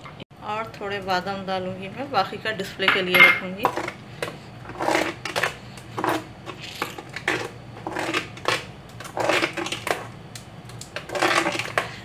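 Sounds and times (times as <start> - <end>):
metal spoon scraping steel pot: 4.6 - 9.9.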